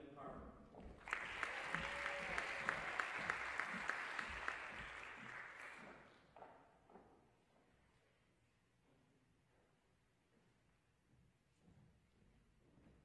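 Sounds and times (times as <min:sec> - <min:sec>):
audience applause: 0:00.9 - 0:06.1
one person clapping: 0:00.9 - 0:06.1.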